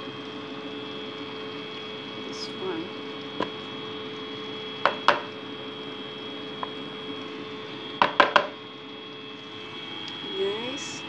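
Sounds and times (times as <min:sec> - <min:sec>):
steady background hum: 0:00.0 - 0:11.0
knocks against mixing bowl: 0:04.8 - 0:05.3, 0:08.0 - 0:08.6.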